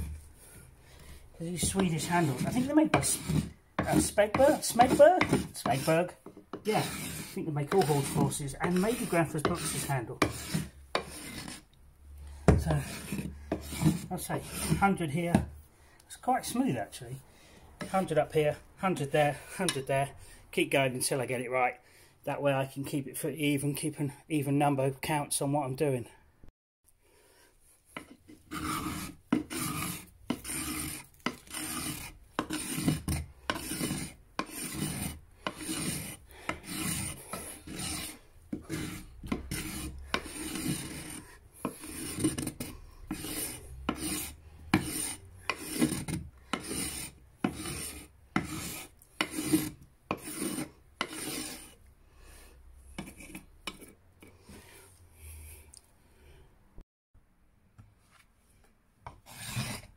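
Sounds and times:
knife scraping wooden handle: 0:00.0 - 0:15.5, 0:27.2 - 0:55.8, 0:59.1 - 0:59.9.

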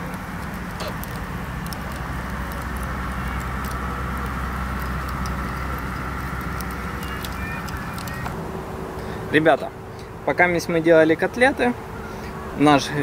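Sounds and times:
outdoor rumble and hiss: 0:00.0 - 0:13.0.

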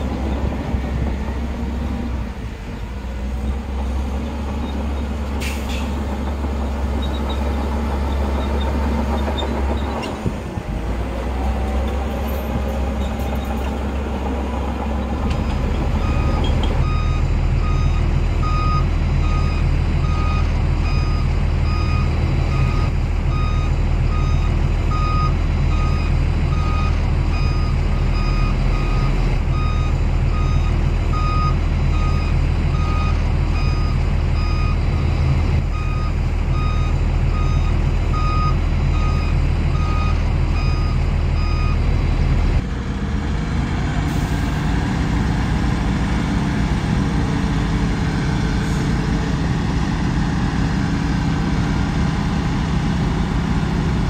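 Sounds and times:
heavy diesel machinery running: 0:00.0 - 0:54.0
reversing alarm beeping: 0:16.0 - 0:34.8, 0:35.7 - 0:41.8.

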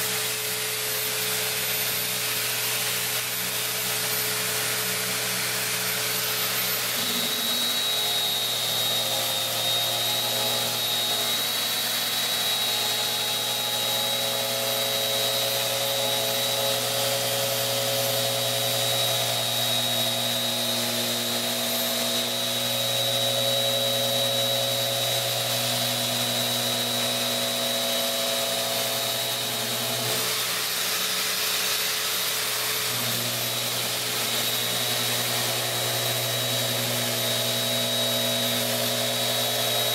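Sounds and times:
orbit sander whining: 0:00.0 - 0:39.9.

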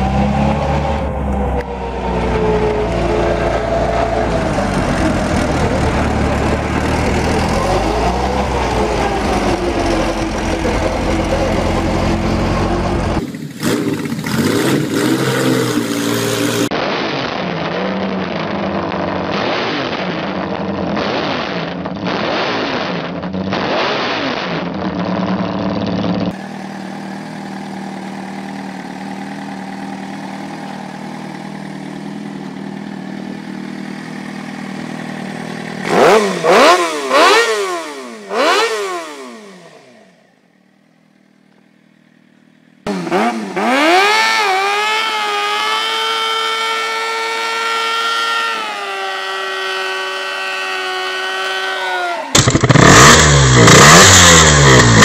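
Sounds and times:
motorcycle engine revving: 0:00.0 - 0:55.0
motorcycle engine idling: 0:01.2 - 0:14.6, 0:25.0 - 0:37.3, 0:40.1 - 0:43.6.

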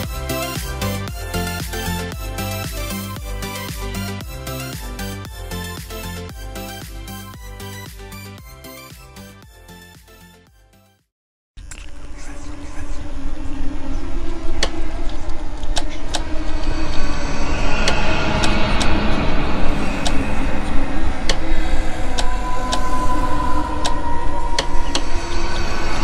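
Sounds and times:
low rumble: 0:11.6 - 0:26.0.

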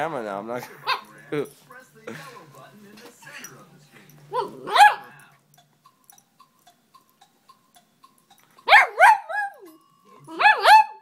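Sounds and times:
small dog barking: 0:04.3 - 0:05.1, 0:08.7 - 0:09.7, 0:10.4 - 0:11.0.

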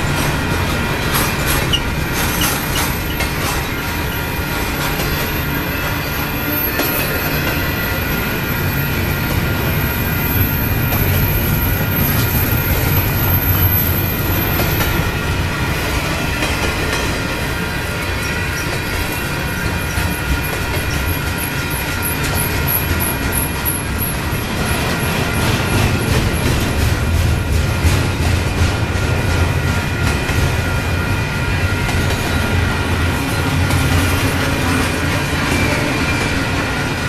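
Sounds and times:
steel wheels rumbling on rail: 0:00.0 - 0:37.0
high wheel squeal: 0:01.6 - 0:14.8.

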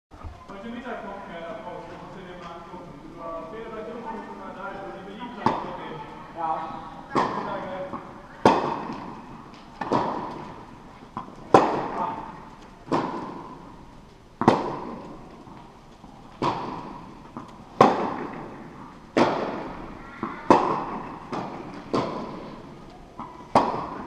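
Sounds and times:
tennis ball bouncing: 0:05.2 - 0:05.8, 0:07.1 - 0:13.8, 0:14.4 - 0:24.0
tennis racket hitting ball: 0:05.4 - 0:05.8, 0:07.1 - 0:13.8, 0:14.4 - 0:24.0.

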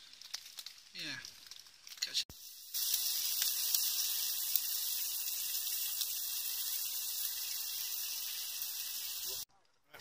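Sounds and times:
bacon sizzling in a pan: 0:00.0 - 0:09.5.

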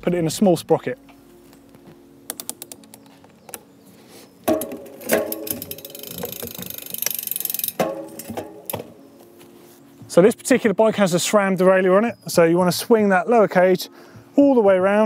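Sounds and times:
bike gear shift clicks: 0:02.3 - 0:03.7, 0:04.5 - 0:09.0
bike chain ticking rapidly: 0:05.0 - 0:08.8.

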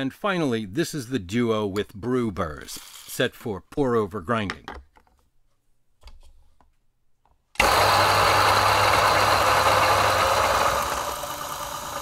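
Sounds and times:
coffee grinder grinding beans: 0:07.6 - 0:12.0
motor hum: 0:07.6 - 0:12.0.

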